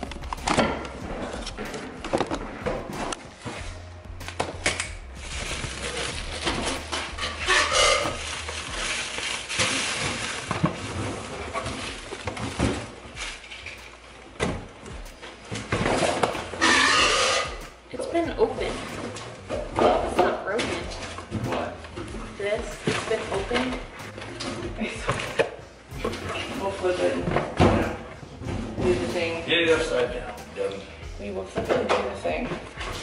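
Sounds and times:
rustling: 0.0 - 17.7.

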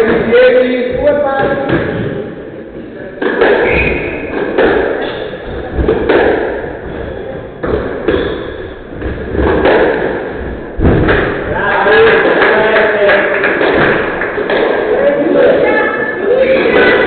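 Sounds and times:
squash ball striking rackets and walls: 1.4 - 2.4, 3.2 - 12.8, 13.5 - 14.9.

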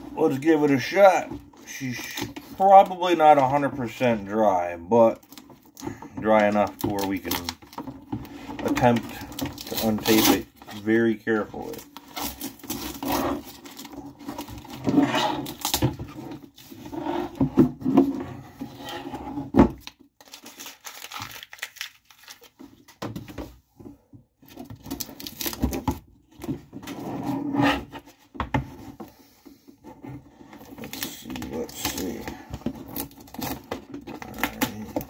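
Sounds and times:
used tape crinkling: 5.0 - 16.7, 19.8 - 23.0, 24.4 - 26.0, 30.6 - 35.0
masking tape peeling off plastic: 9.5 - 10.8, 20.2 - 22.5, 24.9 - 25.7.

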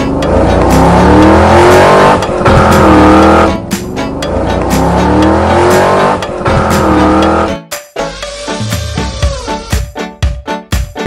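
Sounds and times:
cartoon race car engine revving: 0.0 - 3.6, 4.2 - 7.5, 8.1 - 9.7
background music: 0.0 - 11.0.

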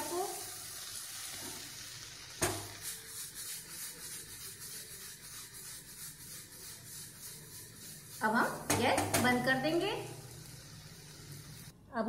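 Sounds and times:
vegetables sauteing in butter: 0.0 - 11.7
spatula scraping pan: 2.4 - 10.4.

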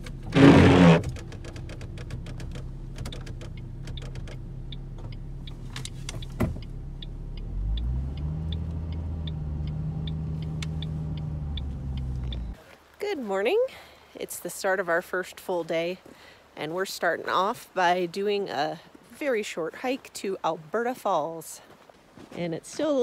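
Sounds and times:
car engine running: 0.0 - 12.6
faint regular ticking: 1.2 - 12.6.

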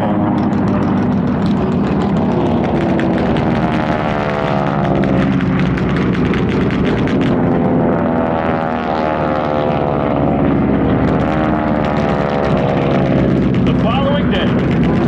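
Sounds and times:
propeller planes droning past: 0.0 - 15.0.

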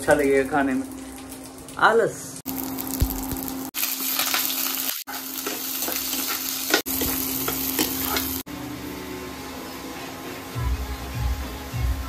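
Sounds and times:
food sizzling in hot oil: 0.0 - 8.5.

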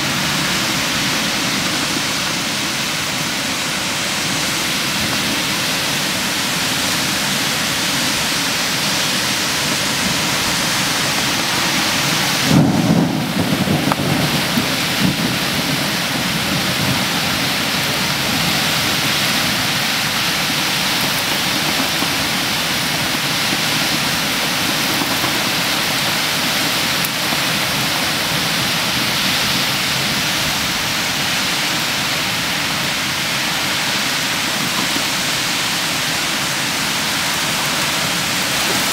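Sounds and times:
heavy rain pouring: 0.0 - 38.9
thunder rumble: 4.2 - 31.3.

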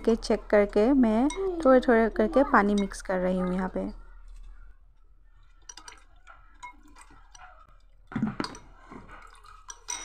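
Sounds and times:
liquid dripping: 0.0 - 10.0
spoon clinking on glass: 5.5 - 7.5, 9.7 - 10.0.

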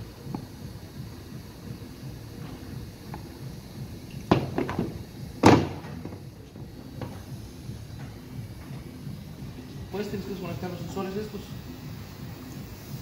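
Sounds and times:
loud knock: 5.4 - 5.9.

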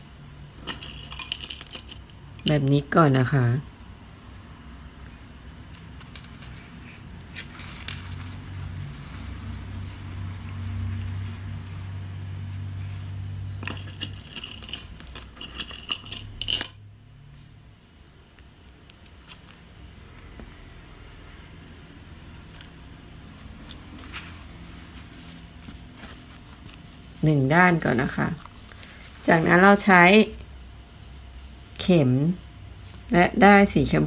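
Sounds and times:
low steady hum: 0.0 - 34.0
small metal objects clinking: 0.6 - 2.6, 13.6 - 16.8.

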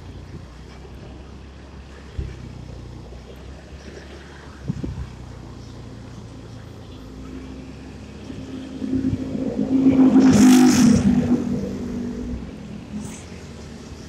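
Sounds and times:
rush of noise: 6.2 - 14.0.

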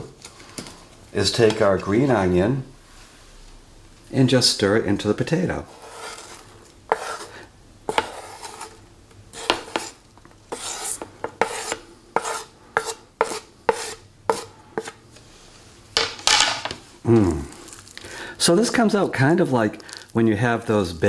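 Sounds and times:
wooden spoon scraping cutting board: 5.6 - 15.0.

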